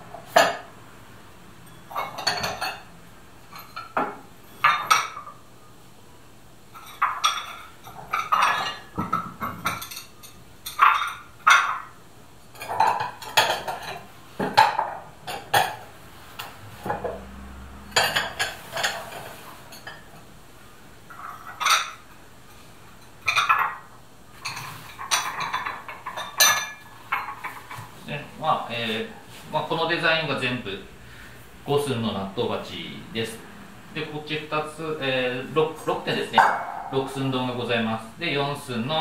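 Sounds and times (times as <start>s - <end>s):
stoneware bowls clinking: 1.6s - 5.4s, 6.7s - 15.8s, 16.4s - 20.3s, 21.1s - 27.8s.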